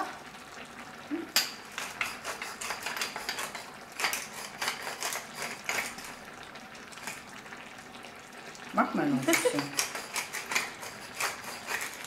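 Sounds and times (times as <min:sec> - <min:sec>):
pepper mill grinding: 0:01.8 - 0:06.2, 0:09.3 - 0:12.0.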